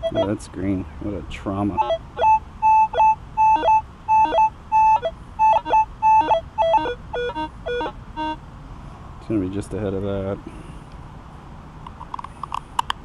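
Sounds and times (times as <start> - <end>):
metal detector beeps: 0.0 - 0.4, 1.8 - 8.4.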